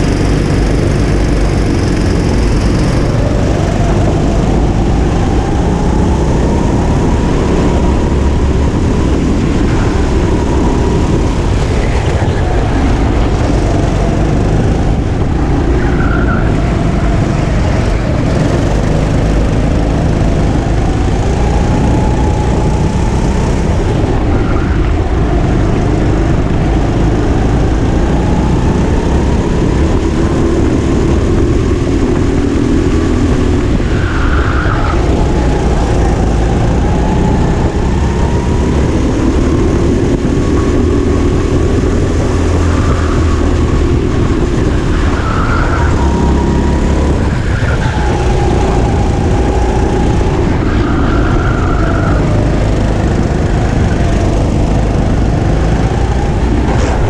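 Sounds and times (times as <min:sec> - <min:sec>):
kart engine running: 0:00.0 - 0:57.0.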